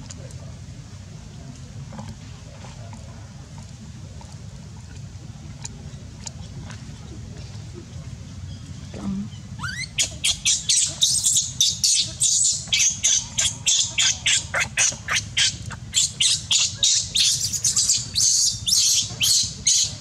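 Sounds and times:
baby monkey shrieking: 9.6 - 19.9.

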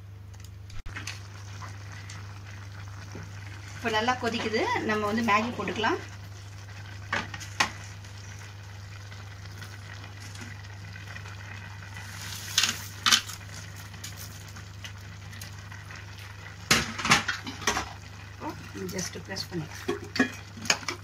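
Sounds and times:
broth boiling: 0.0 - 21.0.

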